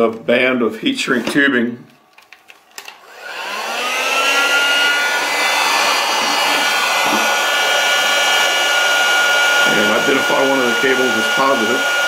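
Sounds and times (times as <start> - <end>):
heat gun fan whine: 2.8 - 12.0.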